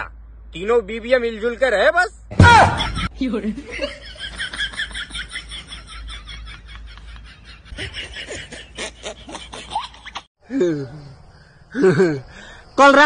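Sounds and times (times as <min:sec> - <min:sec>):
snickering and chuckling: 0:03.7 - 0:10.3.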